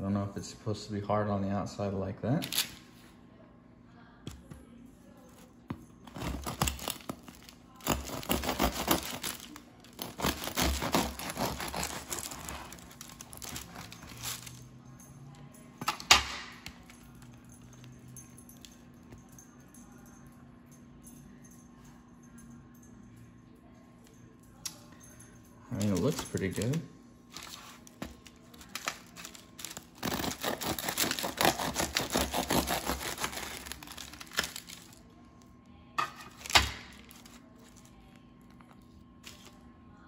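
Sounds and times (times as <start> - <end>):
bread knife sawing crust: 7.8 - 9.4, 10.0 - 13.9, 30.0 - 34.1.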